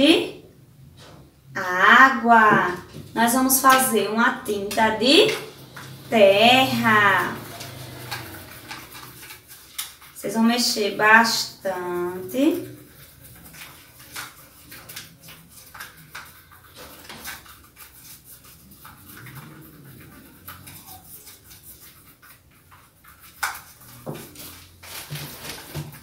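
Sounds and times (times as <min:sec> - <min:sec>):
stick scraping plastic tray: 0:02.5 - 0:10.0.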